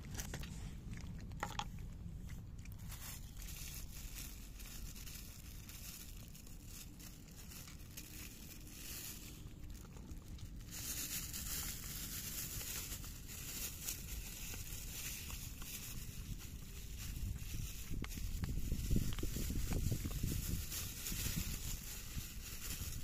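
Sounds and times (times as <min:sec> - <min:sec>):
cats chewing wet food: 0:00.0 - 0:03.9, 0:06.2 - 0:10.9, 0:11.6 - 0:21.0.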